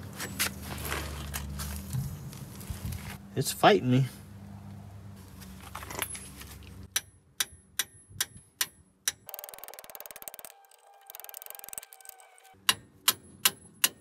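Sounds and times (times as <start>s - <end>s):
ratchet wrench clicking: 7.0s - 14.0s
fast ratcheting: 9.2s - 12.6s.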